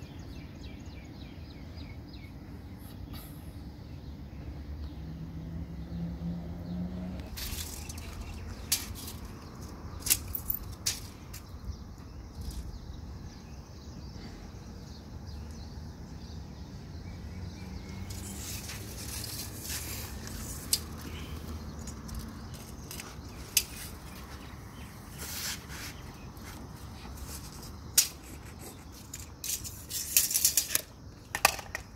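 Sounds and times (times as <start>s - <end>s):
low outdoor hum: 0.0s - 31.9s
tape measure clicks: 7.2s - 11.5s, 18.0s - 21.0s, 27.4s - 31.9s
tape measure blade hissing: 18.0s - 21.1s, 24.9s - 26.2s.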